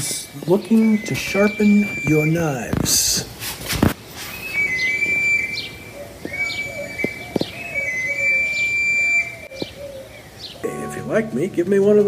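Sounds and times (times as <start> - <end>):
pan flute whistled notes: 0.6 - 2.7, 4.2 - 9.5.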